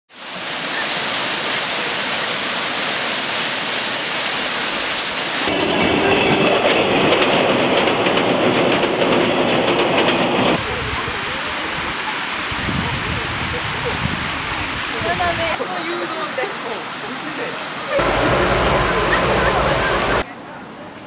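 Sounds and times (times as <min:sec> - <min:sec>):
electric train passing: 0:05.5 - 0:10.6, 0:18.0 - 0:20.2
train wheels clacking: 0:06.3 - 0:10.6
steady rushing hiss: 0:18.0 - 0:20.2.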